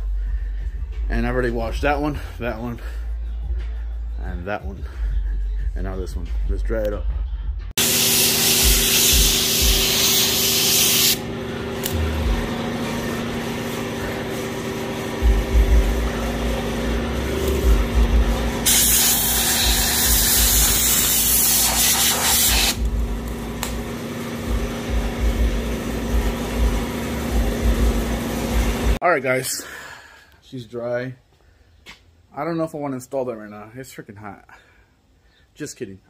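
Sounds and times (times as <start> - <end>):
compressed air blow gun hissing: 7.8 - 11.2, 18.6 - 22.9
steady hum: 7.8 - 29.0.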